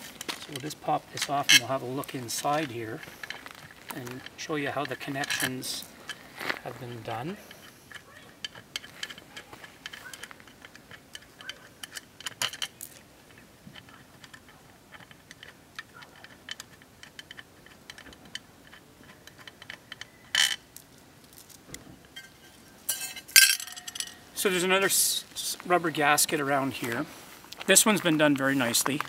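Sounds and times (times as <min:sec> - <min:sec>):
metallic clicks and taps: 0:07.5 - 0:20.9
metal cap clinking: 0:22.2 - 0:24.3.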